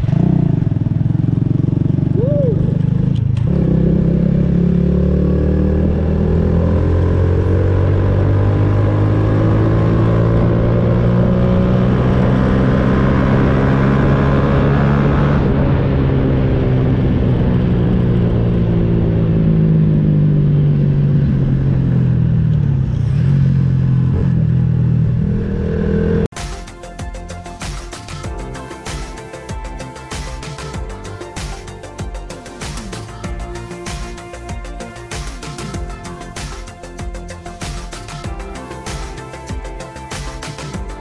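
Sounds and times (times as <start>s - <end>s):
small motorcycle engine running: 0.0s - 26.3s.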